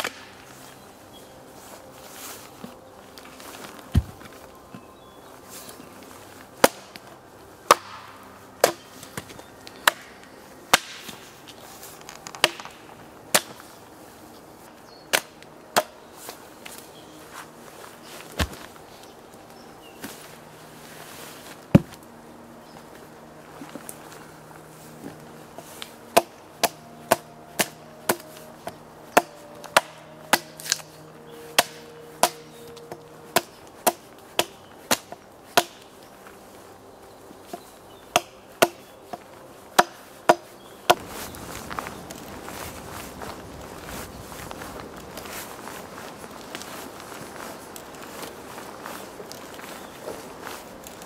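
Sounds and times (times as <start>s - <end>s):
axe chopping wooden log: 7.7s - 10.1s, 10.7s - 11.2s, 12.3s - 13.6s, 21.7s - 22.0s, 26.1s - 28.3s, 29.2s - 30.8s, 31.6s - 35.8s, 38.1s - 38.8s, 39.8s - 41.0s
axe chopping into log: 10.7s - 11.2s.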